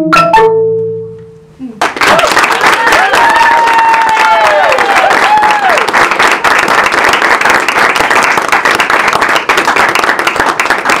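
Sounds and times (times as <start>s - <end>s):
audience applauding: 1.8s - 11.0s
person whooping: 2.0s - 5.9s.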